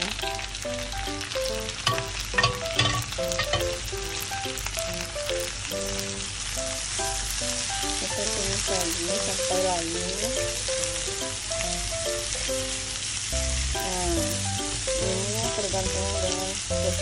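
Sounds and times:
butter sizzling in a wok: 0:00.0 - 0:17.0
simple background melody: 0:00.0 - 0:17.0
spatula scraping and knocking pan: 0:01.8 - 0:03.9.

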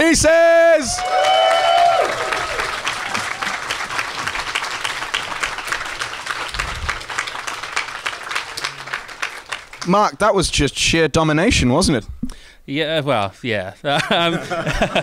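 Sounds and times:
audience applauding: 0:00.8 - 0:10.2.

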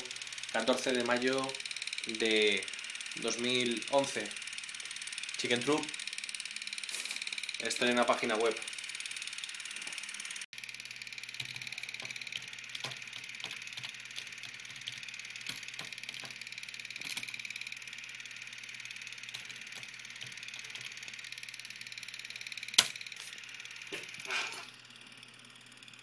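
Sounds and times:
keyboard keys clicking: 0:11.4 - 0:17.4, 0:19.2 - 0:21.2.

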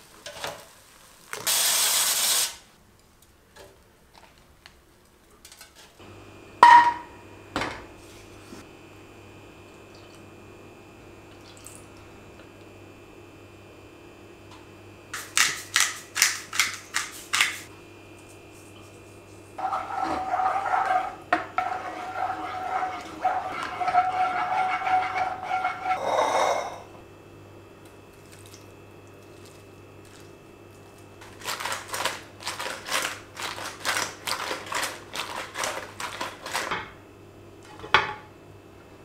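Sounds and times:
wooden spoon scraping frying pan: 0:19.6 - 0:26.9.

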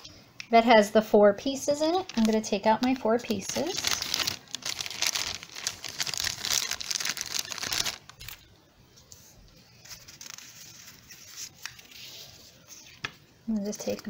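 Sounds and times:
plastic bag crinkling: 0:01.8 - 0:08.5
paper rustling: 0:02.0 - 0:08.4, 0:09.1 - 0:13.2.

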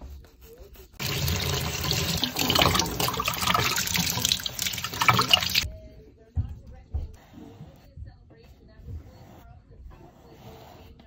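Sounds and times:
tap water running into a sink: 0:01.0 - 0:05.7
water splashing into a jar: 0:01.0 - 0:05.7.

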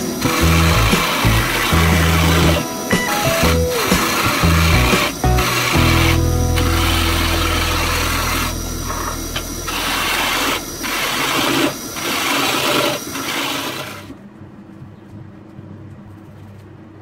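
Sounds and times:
lathe gouge scraping wood: 0:00.0 - 0:02.6, 0:03.3 - 0:14.0.

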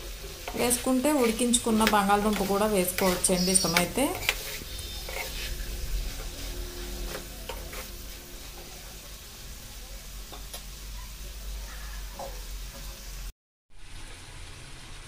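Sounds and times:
spatula scraping a pan: 0:00.0 - 0:10.6
food sizzling in a hot pan: 0:00.0 - 0:15.0.

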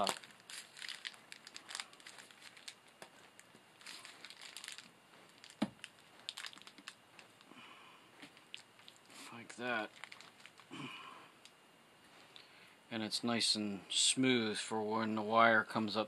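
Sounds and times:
plastic bushing clicks and rustles: 0:00.0 - 0:07.5, 0:08.2 - 0:10.7.

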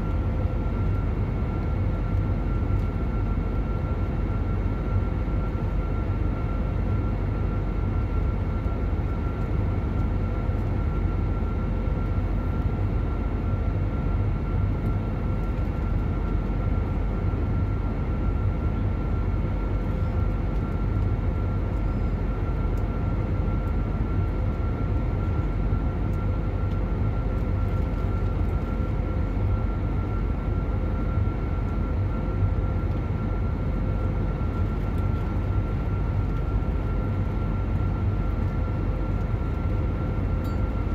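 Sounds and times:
jet engine low rumble: 0:00.0 - 0:40.9
steady hum: 0:00.0 - 0:40.9
high steady whine: 0:24.6 - 0:40.9.

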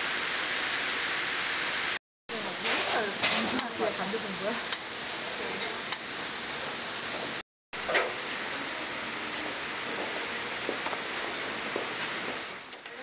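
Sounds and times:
patties sizzling on a grill: 0:00.3 - 0:07.4.

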